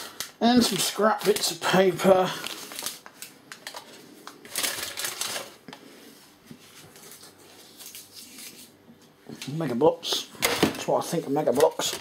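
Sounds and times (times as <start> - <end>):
paper rustling: 6.5 - 8.8.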